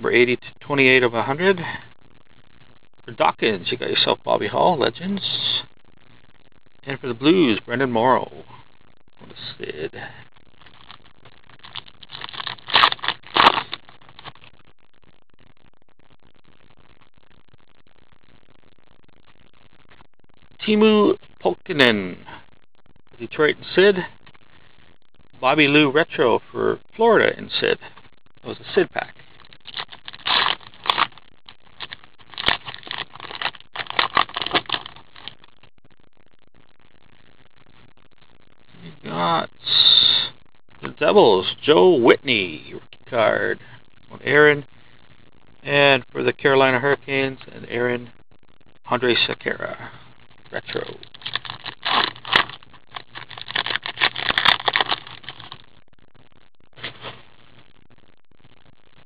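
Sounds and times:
card pack crinkling and rustling: 0:11.6 - 0:14.4, 0:29.6 - 0:31.2, 0:31.8 - 0:35.4, 0:50.6 - 0:55.6.

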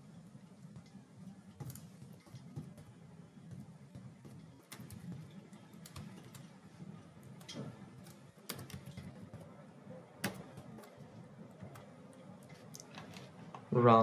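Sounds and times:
keyboard typing: 0:00.6 - 0:13.4.

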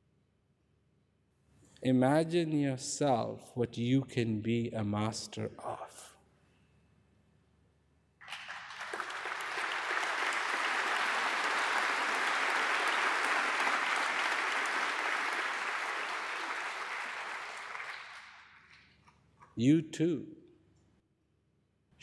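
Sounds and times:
audience applauding: 0:08.2 - 0:19.0.

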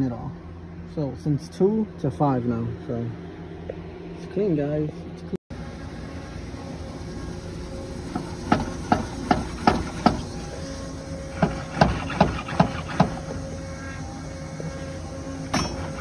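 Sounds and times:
car suspension knocking: 0:08.1 - 0:10.2.

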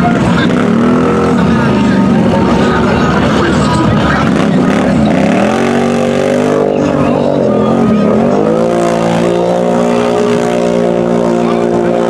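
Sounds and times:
atv engine revving: 0:00.0 - 0:12.0
tires churning through mud: 0:00.0 - 0:12.0.

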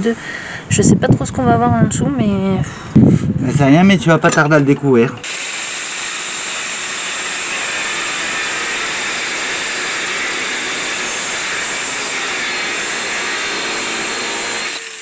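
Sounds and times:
angle grinder cutting: 0:05.2 - 0:15.0.

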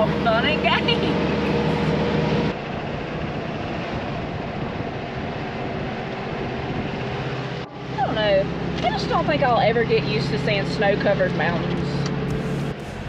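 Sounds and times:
road and engine hum: 0:00.0 - 0:13.0
tyre and wind noise: 0:02.5 - 0:07.6.

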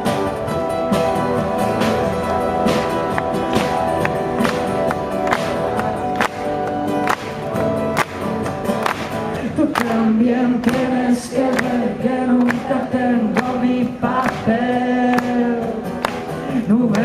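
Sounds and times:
strummed acoustic guitars: 0:00.0 - 0:17.0
two men singing: 0:09.4 - 0:17.0.

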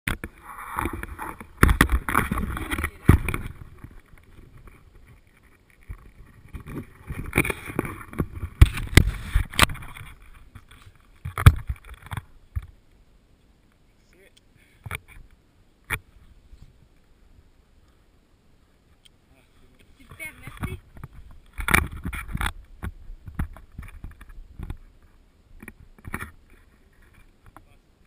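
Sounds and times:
wind noise on microphone: 0:00.1 - 0:12.7, 0:20.0 - 0:27.6
camera handling knocks and thumps: 0:00.9 - 0:04.0, 0:05.9 - 0:10.2, 0:11.2 - 0:12.7, 0:20.4 - 0:24.8.

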